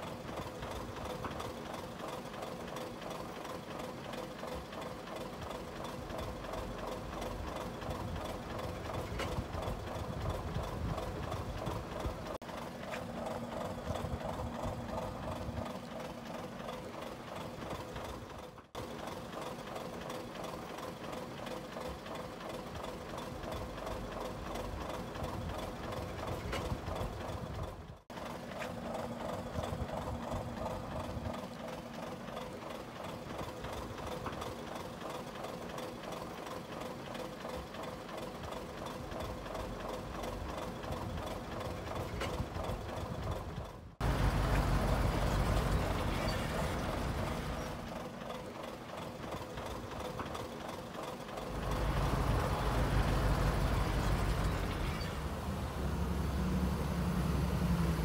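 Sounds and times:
heavy diesel engine clattering: 0.0s - 58.0s.

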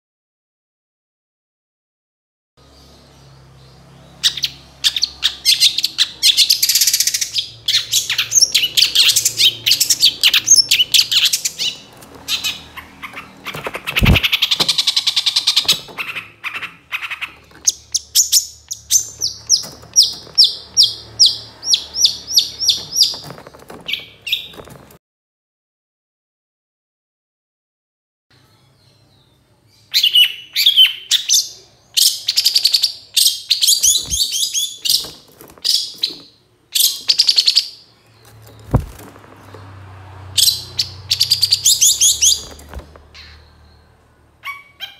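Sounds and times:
bird harsh chattering calls: 4.2s - 24.7s, 29.9s - 39.5s, 40.3s - 44.9s.

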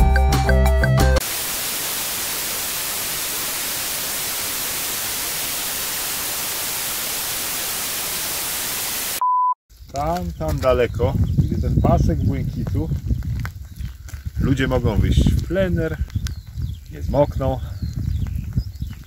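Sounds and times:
background music: 0.0s - 1.2s
television static hiss: 1.2s - 9.2s.

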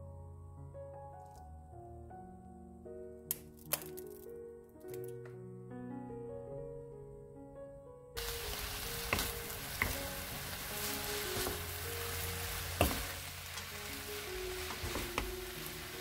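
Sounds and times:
food sizzling in a frying pan: 8.2s - 16.0s
wooden spatulas knocking on pan: 8.4s - 10.5s, 11.3s - 11.8s, 12.7s - 13.7s, 14.6s - 15.4s.

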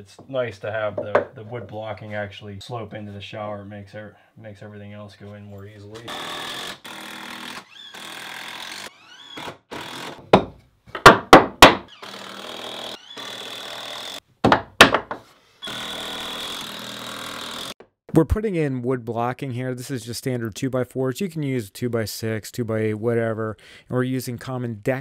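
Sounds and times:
impact driver motor whining: 6.1s - 10.2s, 11.9s - 14.2s, 15.6s - 17.7s
loud sharp knocks: 10.2s - 11.9s.

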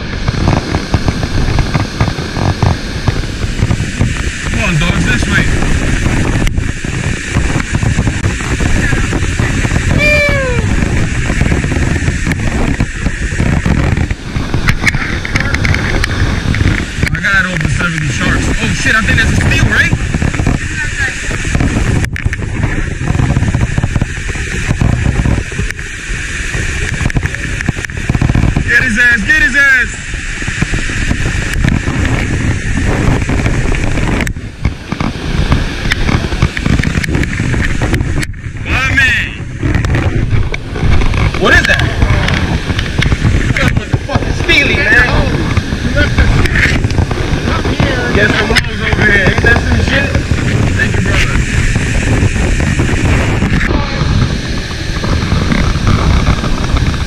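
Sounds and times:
water pouring over a spillway: 0.0s - 57.0s
wind buffeting microphone: 0.0s - 57.0s
falling shout: 10.0s - 10.7s.

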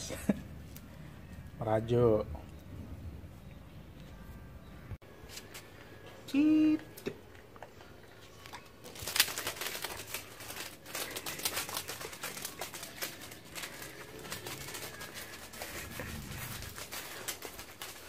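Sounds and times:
packing tape crinkling and clicking: 8.4s - 18.0s.

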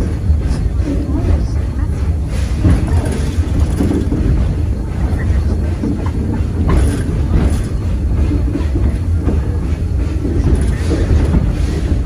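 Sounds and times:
train clanks: 0.0s - 12.0s
train rumbling along track: 0.0s - 12.0s.

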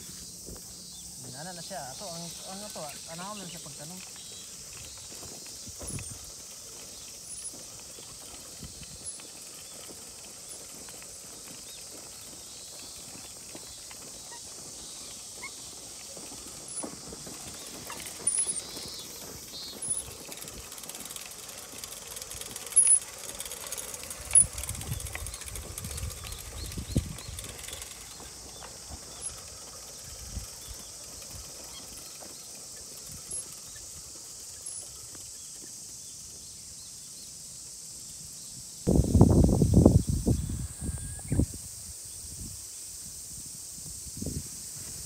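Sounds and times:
footsteps in soft soil: 0.0s - 1.3s
seeder rolling along soil: 0.0s - 45.0s.

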